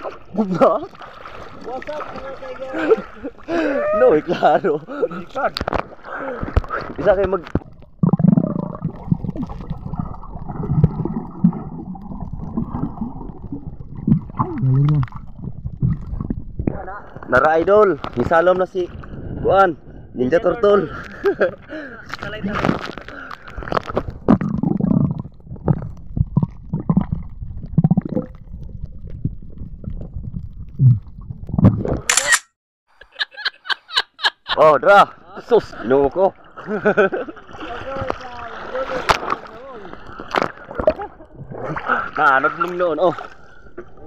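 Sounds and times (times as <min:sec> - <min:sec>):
underwater water rushing: 0:00.0 - 0:20.0, 0:35.2 - 0:44.0
air bubbles gurgling: 0:05.8 - 0:17.3, 0:22.9 - 0:32.1.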